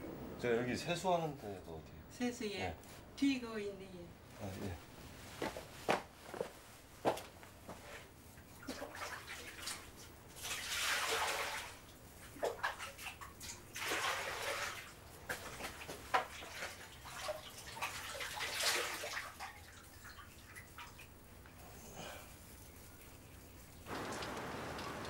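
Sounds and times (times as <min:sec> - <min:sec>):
water splashing in a basin: 0:08.4 - 0:21.2.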